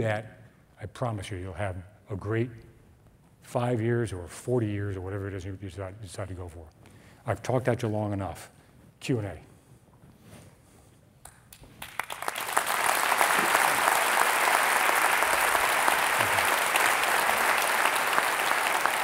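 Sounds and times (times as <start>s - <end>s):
audience applauding: 11.7s - 19.0s.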